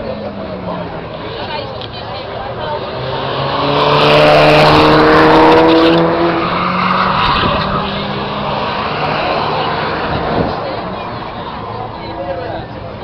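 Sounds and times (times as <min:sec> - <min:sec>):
race car accelerating past: 0:02.5 - 0:11.7.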